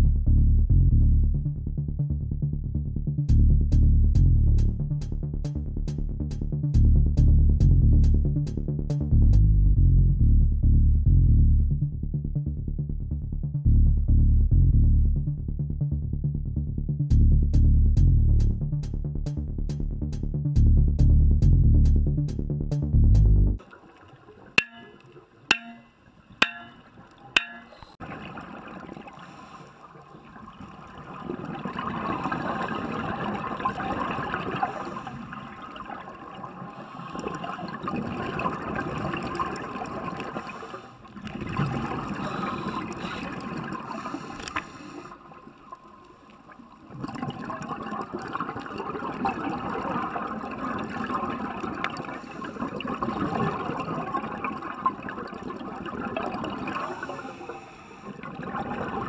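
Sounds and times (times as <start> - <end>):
underwater breath bubbling: 24.6 - 59.0.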